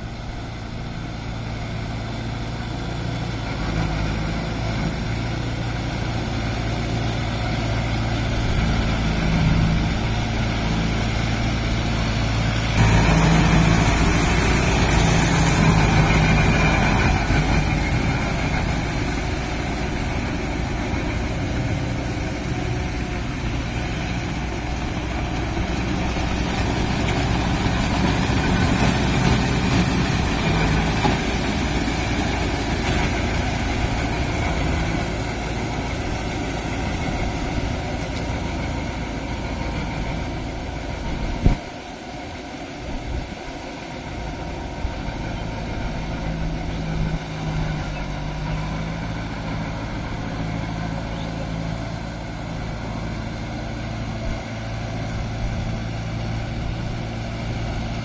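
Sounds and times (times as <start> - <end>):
tractor diesel engine under load: 0.0 - 58.0
rotary tiller working: 5.0 - 48.5.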